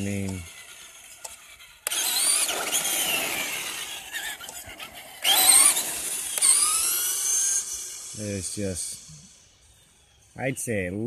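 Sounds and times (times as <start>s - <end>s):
electric motor whining: 0.0s - 10.5s.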